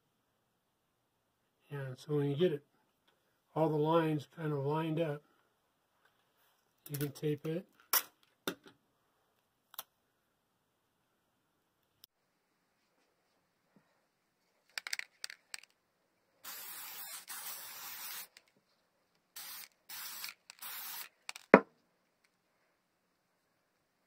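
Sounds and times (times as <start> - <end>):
aerosol spray hissing: 16.4 - 18.4, 19.4 - 21.1.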